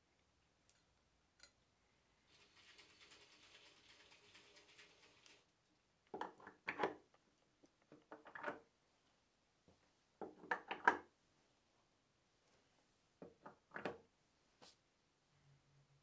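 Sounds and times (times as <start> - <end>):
faint hiss: 1.8 - 5.7.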